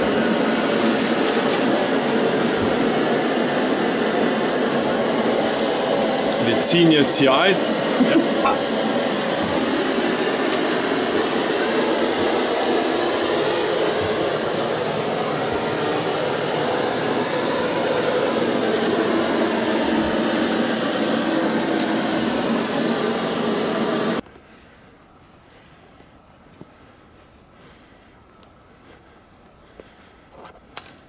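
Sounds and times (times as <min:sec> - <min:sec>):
loud steady rushing noise: 0:00.0 - 0:24.2.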